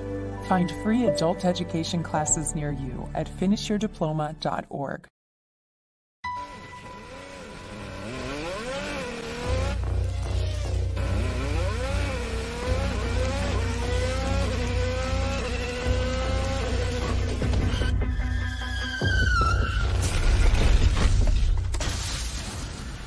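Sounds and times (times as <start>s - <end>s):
racing car engine revving: 7.0s - 17.7s.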